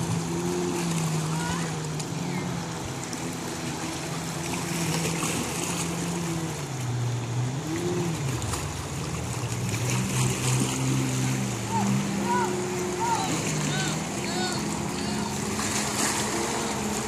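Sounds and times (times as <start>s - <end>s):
jet ski engine droning: 0.0s - 17.0s
wind: 0.0s - 17.0s.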